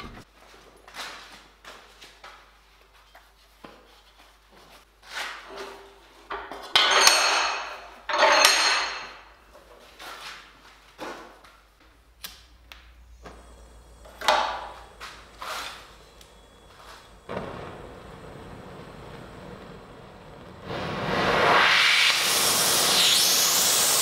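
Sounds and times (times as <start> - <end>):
metal tools clattering: 6.3 - 9.3
gas torch burning: 12.3 - 24.0
loud torch hiss: 13.2 - 24.0.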